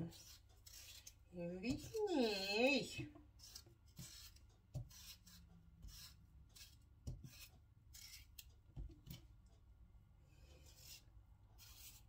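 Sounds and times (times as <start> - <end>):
faint rubbing and scraping: 0.0 - 2.4, 10.2 - 12.0.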